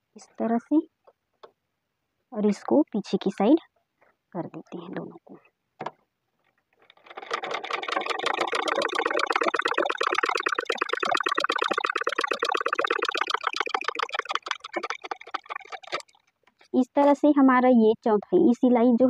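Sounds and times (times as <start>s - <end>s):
sewing machine stitching: 6.8s - 9.6s.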